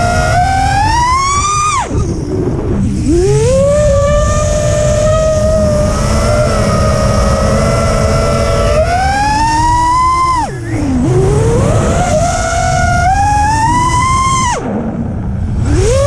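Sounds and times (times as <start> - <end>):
drone motors whining: 0.0 - 16.0
wind rush on microphone: 0.0 - 16.0.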